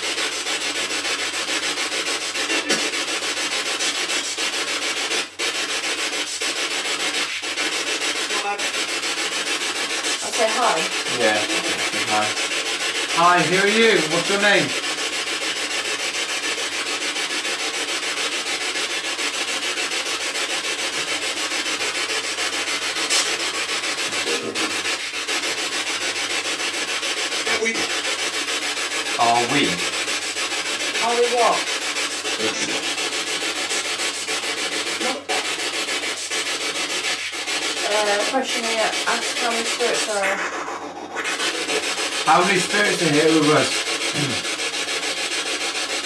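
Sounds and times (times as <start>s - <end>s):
chopped voice fragments: 2.4s - 3.0s, 10.2s - 12.4s, 13.1s - 14.8s, 24.1s - 24.8s, 29.2s - 29.9s, 32.4s - 32.8s, 37.8s - 40.4s, 42.3s - 44.4s
radio static: 2.4s - 3.0s, 10.2s - 12.4s, 13.1s - 14.7s, 24.1s - 24.9s, 32.4s - 32.9s.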